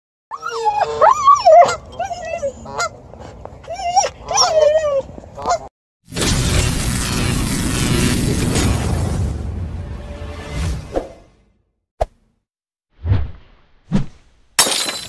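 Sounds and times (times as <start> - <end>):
husky whining and yowling: 0.3 - 2.9, 3.6 - 5.2.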